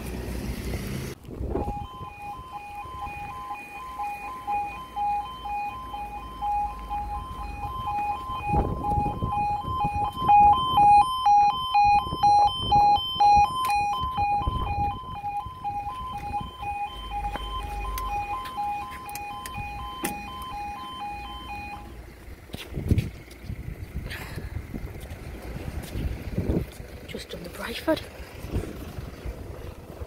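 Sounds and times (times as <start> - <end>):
two-tone electronic alarm warble: 1.5 - 22.0.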